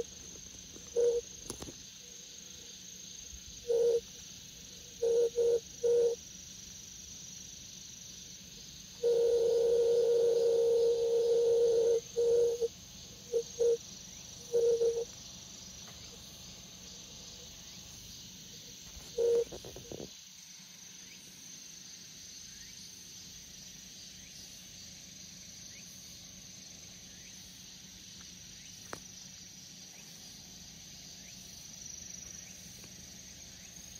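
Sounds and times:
grass insects chirring: 0.0s - 20.3s.

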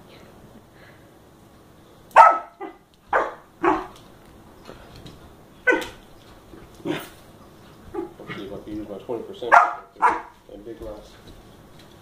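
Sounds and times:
puppy barking: 2.2s - 4.0s, 5.6s - 6.0s, 7.9s - 8.4s, 9.4s - 10.4s.

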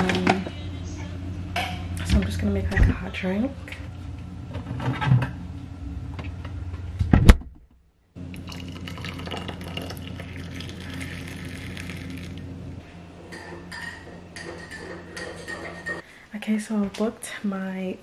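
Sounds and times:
water pouring into a mug: 8.3s - 12.4s.

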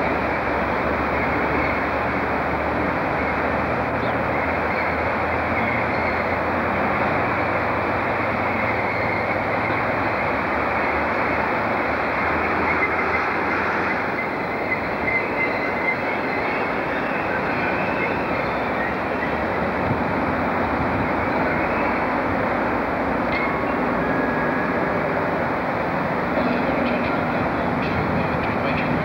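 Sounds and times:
train rumbling: 0.0s - 29.0s
faint high wheel squeal: 3.2s - 11.3s, 12.4s - 19.7s, 21.1s - 22.2s, 23.3s - 25.0s.

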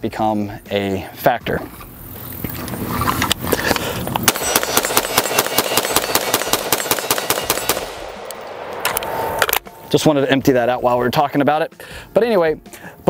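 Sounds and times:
rifle firing rapid shots: 4.3s - 9.6s.

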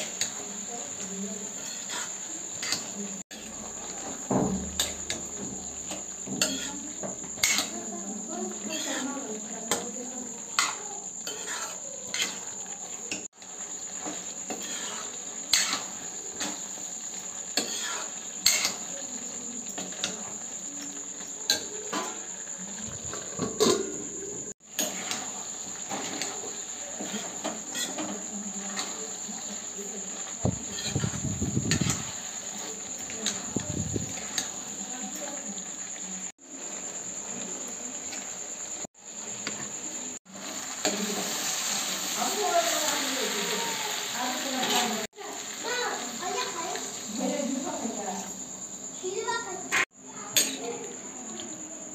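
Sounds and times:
crickets chirping: 0.0s - 51.9s
spatula clinking against pan: 5.9s - 6.7s.

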